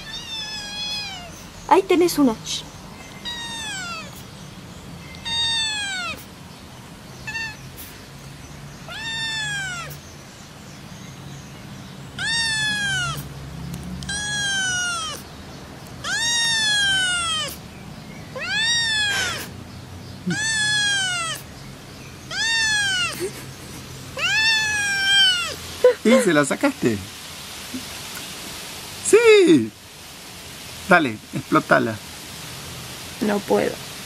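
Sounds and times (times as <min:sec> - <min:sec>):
kitten meowing: 0:00.0 - 0:01.6, 0:03.1 - 0:04.3, 0:05.1 - 0:06.3, 0:07.2 - 0:07.9, 0:08.9 - 0:10.0, 0:12.2 - 0:13.3, 0:14.0 - 0:15.3, 0:16.0 - 0:17.6, 0:18.4 - 0:19.5, 0:20.3 - 0:21.5, 0:22.3 - 0:23.4, 0:24.2 - 0:25.6.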